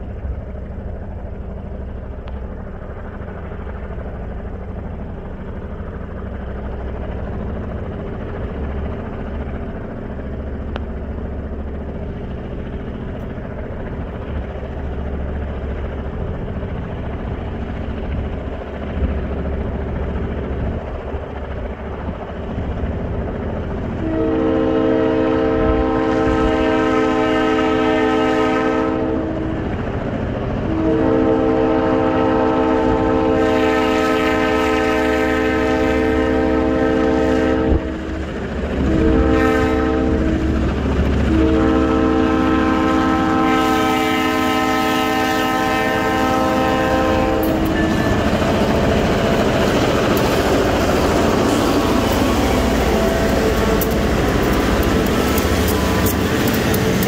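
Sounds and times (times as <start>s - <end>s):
low engine rumble: 0.0s - 33.8s, 34.5s - 57.0s
rail noise: 0.0s - 57.0s
locomotive air horn: 24.0s - 29.7s, 30.7s - 38.2s, 38.8s - 40.6s, 41.2s - 57.0s.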